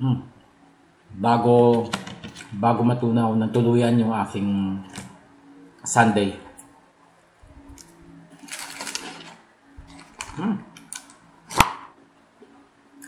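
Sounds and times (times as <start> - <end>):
plastic packet rustling: 7.8 - 11.2.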